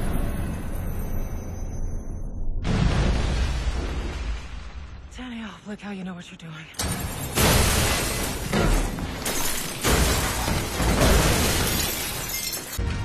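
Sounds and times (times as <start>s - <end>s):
falling debris: 6.8s - 12.8s
heavy crashes and shattering: 6.8s - 12.9s.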